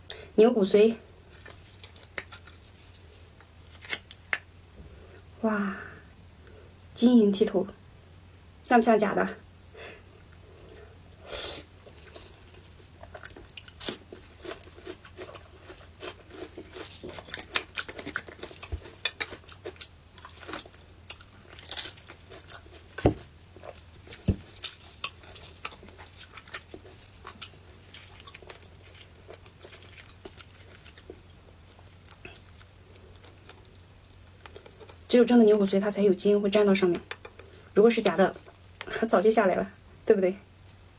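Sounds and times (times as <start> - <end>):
person chewing bone marrow: 1.2 - 4.4, 10.3 - 35.1, 37.0 - 38.9.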